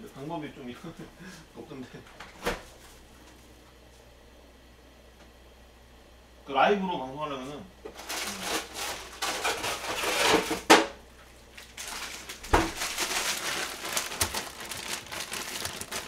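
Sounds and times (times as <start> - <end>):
plastic bag crinkling: 8.0 - 10.2, 11.5 - 16.0.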